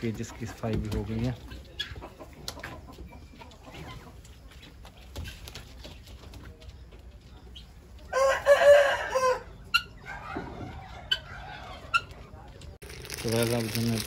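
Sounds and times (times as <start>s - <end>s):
chickens clucking: 0.0s - 12.8s
rooster crowing: 8.1s - 10.3s.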